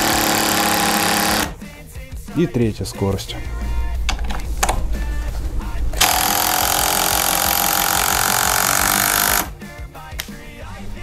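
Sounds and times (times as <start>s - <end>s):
driver motor running: 0.0s - 1.6s, 4.0s - 9.6s
impact driver hammering: 0.0s - 1.6s, 6.0s - 9.5s.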